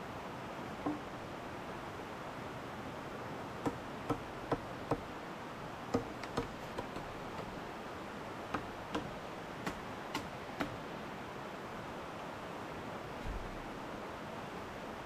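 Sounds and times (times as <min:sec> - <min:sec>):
background hiss: 0:00.0 - 0:15.0
machete chopping bamboo: 0:06.0 - 0:07.5, 0:08.6 - 0:10.8.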